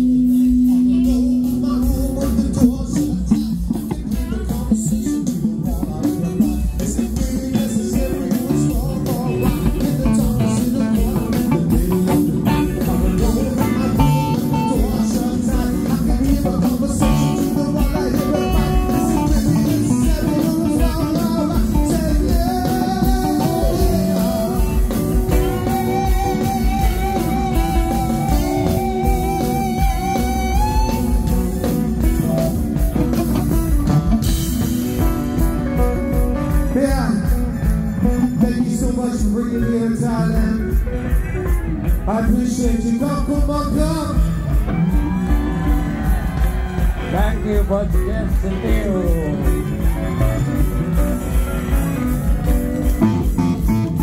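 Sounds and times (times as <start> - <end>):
bass guitar: 0.0 - 54.0
drums: 0.0 - 54.0
electric guitars: 0.0 - 54.0
person singing: 0.0 - 54.0.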